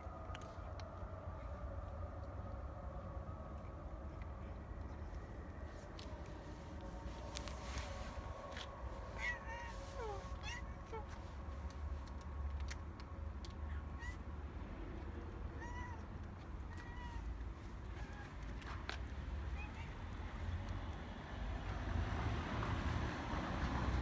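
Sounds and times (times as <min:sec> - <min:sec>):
cat meowing: 0:09.1 - 0:11.2, 0:15.6 - 0:16.1, 0:16.7 - 0:17.3, 0:19.6 - 0:20.0.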